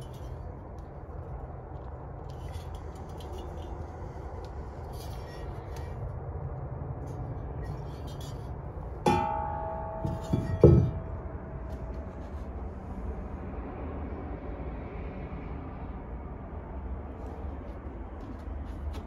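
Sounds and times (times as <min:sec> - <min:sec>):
steel piece clanking and ringing: 0:07.5 - 0:12.7
knocks: 0:09.1 - 0:11.2
heavy thump: 0:09.1 - 0:12.4.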